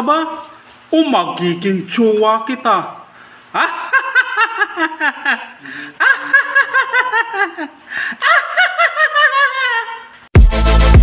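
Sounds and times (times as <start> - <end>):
man laughing heartily: 3.6 - 10.2.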